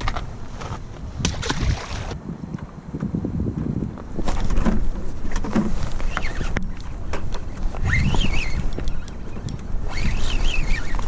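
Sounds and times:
wind buffeting microphone: 0.0 - 11.0.

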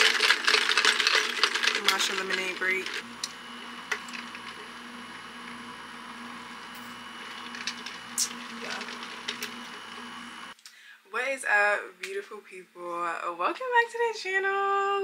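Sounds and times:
ice cubes rattling in cup: 0.0 - 3.0.

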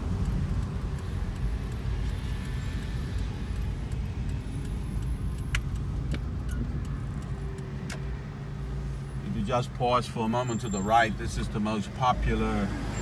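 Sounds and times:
vehicle cabin engine rumble: 0.0 - 13.0.

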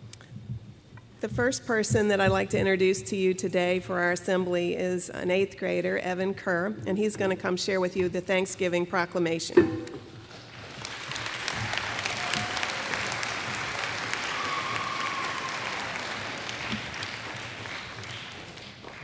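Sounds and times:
audience applauding: 10.3 - 19.0.

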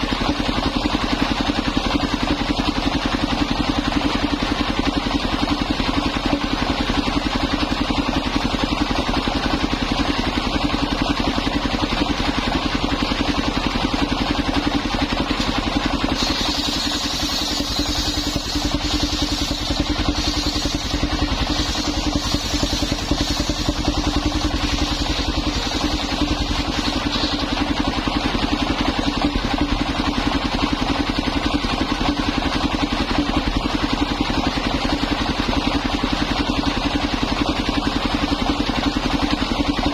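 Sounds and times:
stationary engine running: 0.0 - 39.9
saw blade cutting timber: 14.6 - 28.2.

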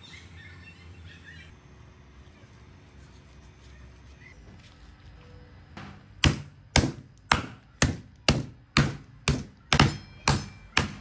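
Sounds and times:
meat mallet whacks: 6.2 - 11.0.

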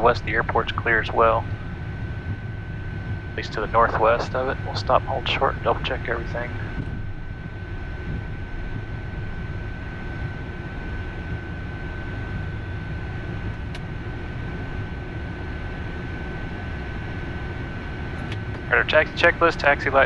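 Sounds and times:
thin high whine: 0.0 - 15.3
jet engines idling: 0.0 - 20.0.

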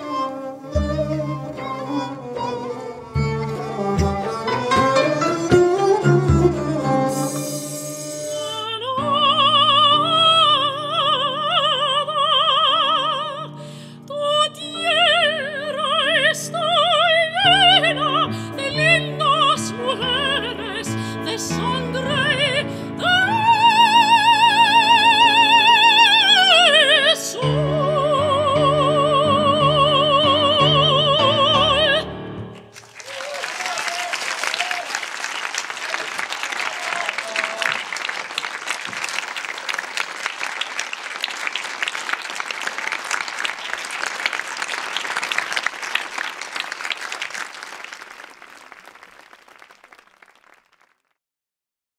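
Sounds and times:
instrumental accompaniment: 0.0 - 10.1
operatic soprano singing: 7.1 - 32.2
audience applauding: 32.6 - 51.1.

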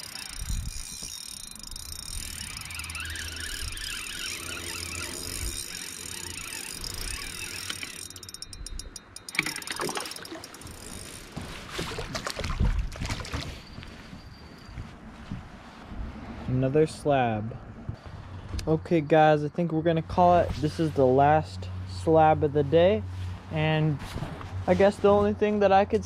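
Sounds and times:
spinning reel cranking: 0.0 - 11.3.

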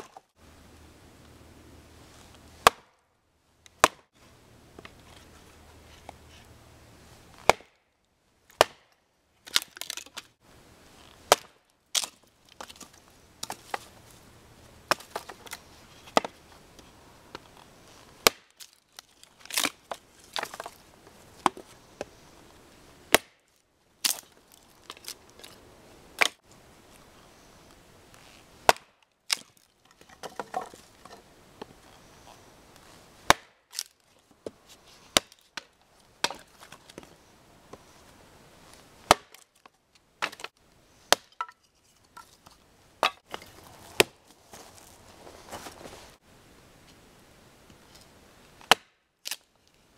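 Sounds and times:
axe splitting wood: 2.6 - 3.0, 3.7 - 4.1, 7.4 - 7.8, 8.6 - 8.9, 11.2 - 13.8, 14.9 - 16.4, 18.2 - 18.6, 23.1 - 23.4, 26.2 - 26.4, 28.6 - 31.3, 33.3 - 33.9, 35.1 - 37.0, 39.1 - 39.5, 40.2 - 40.5, 41.1 - 41.6, 43.0 - 44.2, 48.6 - 49.4.

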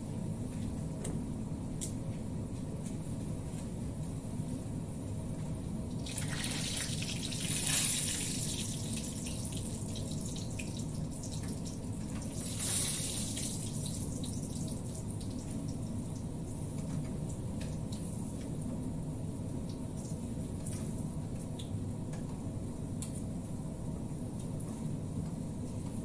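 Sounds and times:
steady low hum: 0.0 - 26.0
hot oil sizzling: 6.0 - 15.8.

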